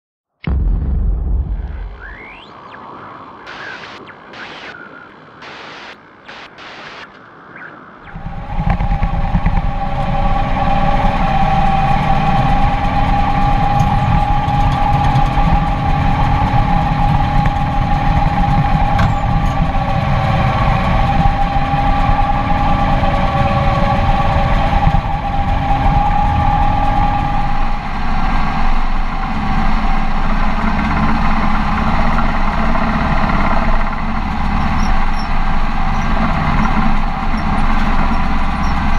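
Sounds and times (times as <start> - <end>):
high whine: 0.4 - 38.9
whooshing bursts: 0.5 - 4.8
tractor diesel engine running: 8.4 - 38.9.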